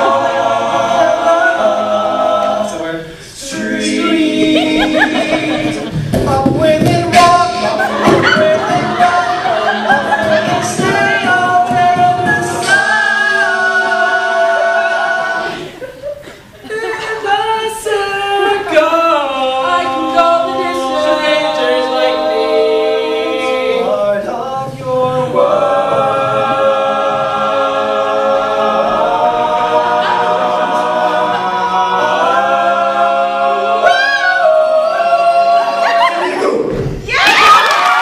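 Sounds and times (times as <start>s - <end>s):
men singing in close harmony: 0.0s - 15.7s, 16.9s - 36.4s
audience cheering: 37.1s - 38.0s.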